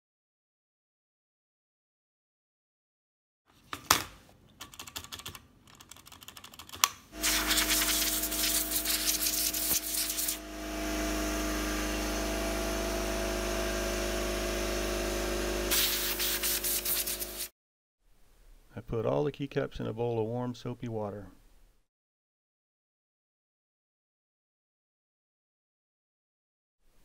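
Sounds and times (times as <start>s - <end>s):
air compressor motor humming: 7.1s - 17.5s
air blowgun blasting: 7.2s - 12.8s, 15.6s - 17.5s.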